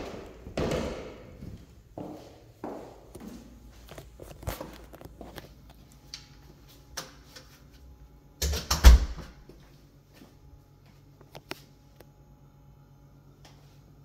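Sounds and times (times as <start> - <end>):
footsteps in a house: 0.0 - 8.0, 9.2 - 12.0.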